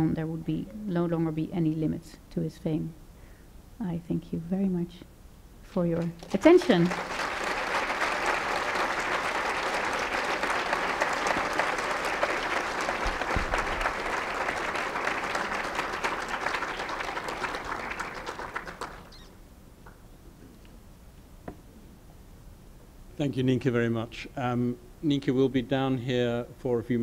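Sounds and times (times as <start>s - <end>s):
audience applauding: 6.0s - 19.3s.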